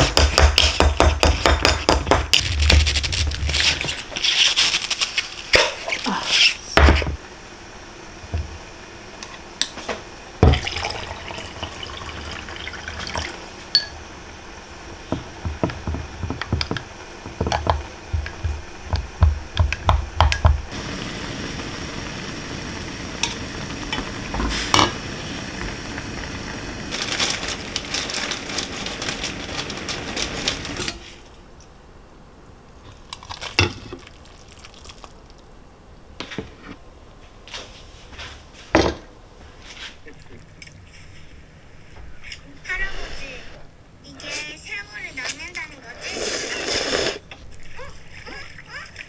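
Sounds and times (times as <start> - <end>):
tap running water into sink: 10.4 - 13.3.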